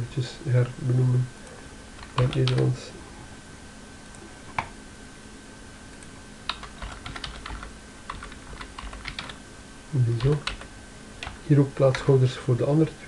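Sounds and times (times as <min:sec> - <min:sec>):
computer keyboard typing: 0:02.0 - 0:02.7, 0:06.5 - 0:09.4, 0:10.2 - 0:12.1.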